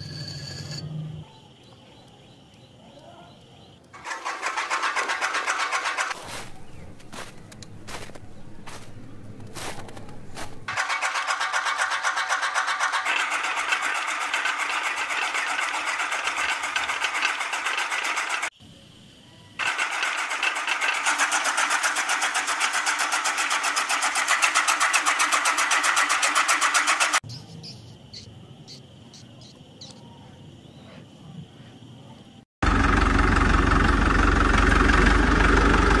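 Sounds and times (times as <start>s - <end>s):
toy motor rattling whir: 4.0s - 6.5s, 10.7s - 18.6s, 19.6s - 27.8s.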